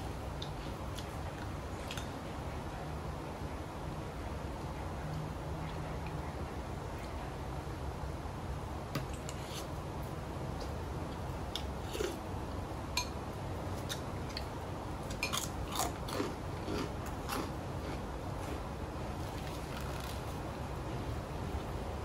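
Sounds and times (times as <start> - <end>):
steady low hum: 0.0 - 22.0
person chewing crunchy food: 11.6 - 12.2, 13.8 - 18.6.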